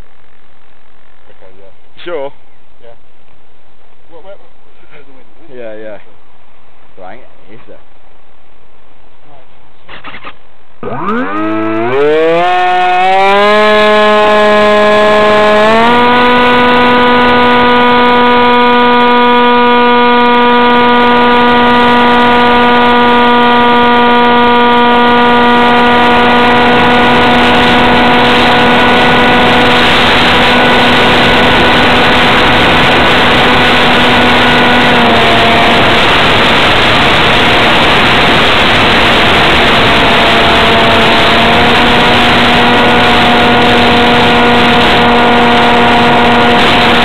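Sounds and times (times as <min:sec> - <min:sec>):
electric motor propeller whine: 0:10.8 - 0:47.0
wind rush on microphone: 0:11.4 - 0:47.0.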